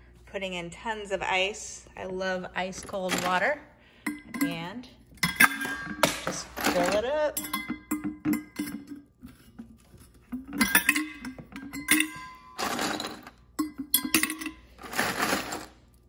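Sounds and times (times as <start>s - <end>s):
ice cubes clinking into bottle: 10.6s - 15.8s.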